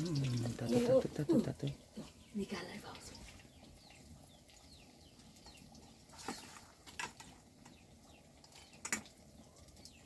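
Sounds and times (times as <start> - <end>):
faint birds chirping: 0.0 - 10.0.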